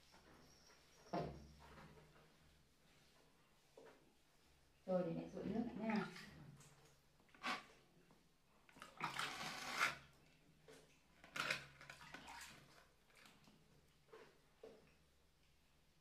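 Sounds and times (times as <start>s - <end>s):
water poured and splashing: 5.4s - 7.8s, 8.7s - 14.8s.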